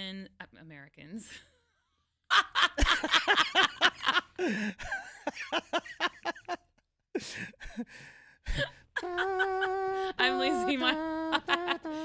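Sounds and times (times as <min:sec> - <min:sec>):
woman laughing hard: 0:02.3 - 0:07.8, 0:08.5 - 0:12.0.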